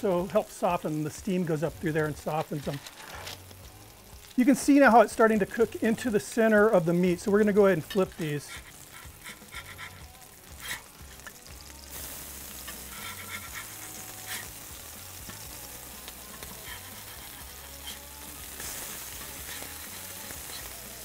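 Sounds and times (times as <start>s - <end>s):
burger patties sizzling on griddle: 0.0s - 21.0s
spatula clicking on griddle: 7.8s - 11.5s, 12.6s - 21.0s.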